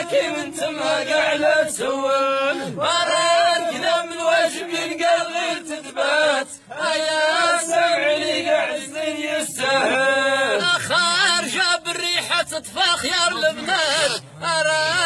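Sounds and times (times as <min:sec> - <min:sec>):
man chanting: 0:09.6 - 0:15.0.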